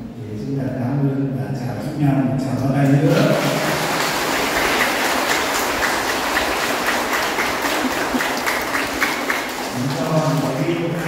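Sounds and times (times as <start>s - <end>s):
congregation clapping: 3.0s - 11.0s.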